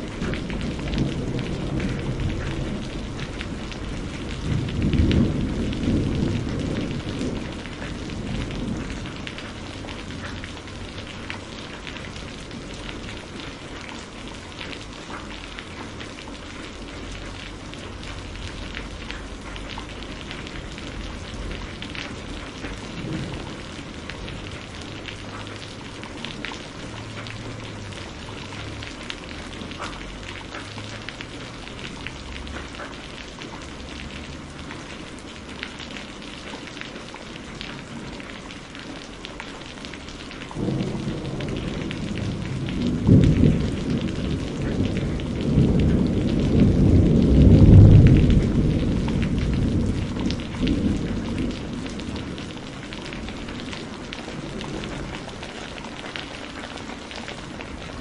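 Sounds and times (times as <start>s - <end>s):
deep roll of thunder: 0.0s - 13.3s, 17.2s - 30.4s, 40.4s - 56.9s
heavy rain: 0.0s - 58.0s.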